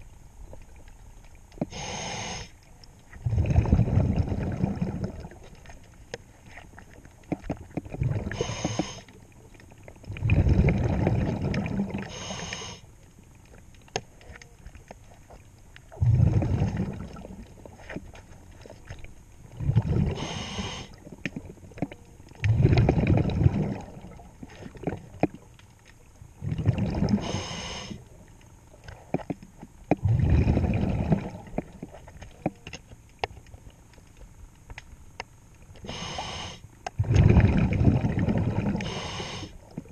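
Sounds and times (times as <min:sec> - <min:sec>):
regulator hiss on inhale: 0:01.6 - 0:02.6, 0:08.3 - 0:09.2, 0:12.0 - 0:12.9, 0:20.0 - 0:21.0, 0:27.1 - 0:28.1, 0:35.8 - 0:36.7, 0:38.8 - 0:39.7
exhaled bubbles rushing: 0:03.2 - 0:05.7, 0:07.4 - 0:08.6, 0:10.0 - 0:12.1, 0:15.9 - 0:17.6, 0:19.5 - 0:20.3, 0:22.4 - 0:25.2, 0:26.4 - 0:27.3, 0:30.0 - 0:31.9, 0:37.0 - 0:39.0
faint clicks and taps: 0:13.3 - 0:15.9, 0:32.2 - 0:35.8.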